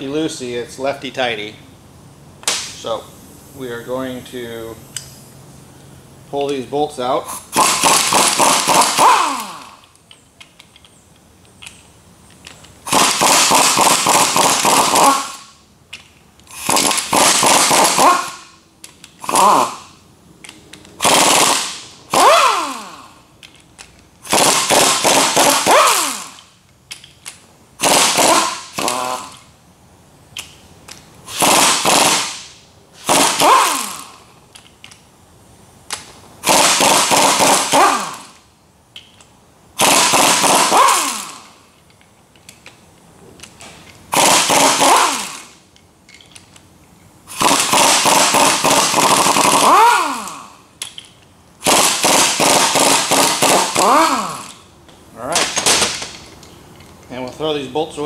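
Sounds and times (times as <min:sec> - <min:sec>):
air impact wrench hammering: 0:07.3 - 0:10.5, 0:12.5 - 0:15.7, 0:16.4 - 0:29.6, 0:30.3 - 0:35.0, 0:35.8 - 0:41.8, 0:43.4 - 0:46.5, 0:47.3 - 0:56.6
air motor whine: 0:16.4 - 0:26.6, 0:51.6 - 0:58.0.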